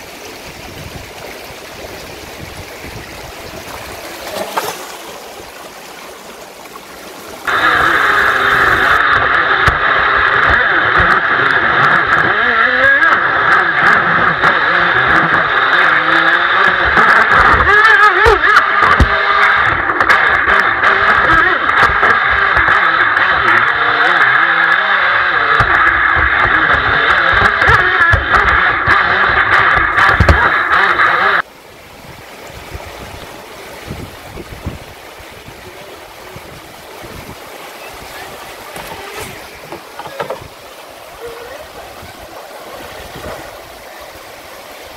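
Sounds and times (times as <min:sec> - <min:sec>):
boat motor high whine: 0:00.0 - 0:44.9
river water rushing: 0:00.0 - 0:44.9
small knocks on boat hull: 0:30.0 - 0:30.5, 0:38.7 - 0:40.6.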